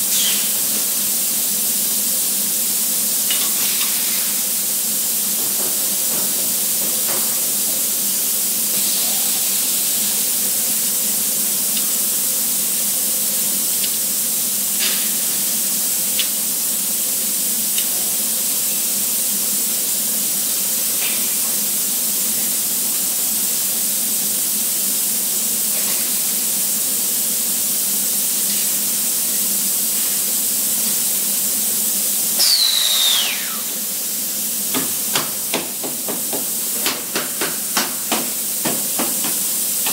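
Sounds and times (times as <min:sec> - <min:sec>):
machinery hissing: 0:00.0 - 0:39.9
high falling whistle: 0:32.4 - 0:33.9.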